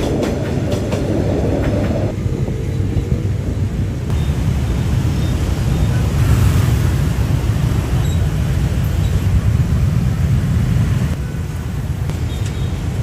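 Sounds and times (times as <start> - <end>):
passing vehicle rumble: 1.1 - 11.7.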